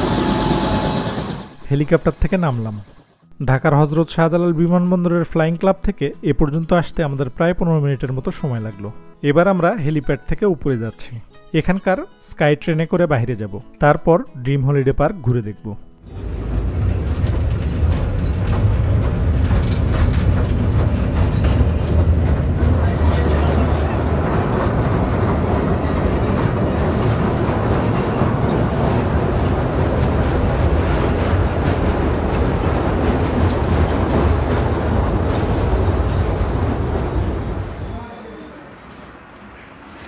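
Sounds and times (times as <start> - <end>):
sky train low rumble: 16.1 - 40.0.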